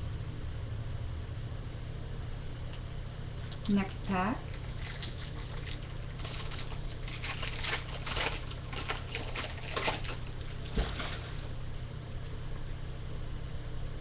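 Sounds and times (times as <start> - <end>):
low steady hum: 0.0 - 14.0
foil wrapper crinkling: 3.4 - 11.9.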